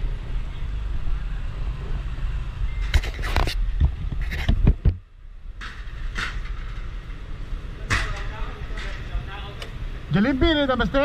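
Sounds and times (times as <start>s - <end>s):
knocks and bumps: 2.8s - 9.7s.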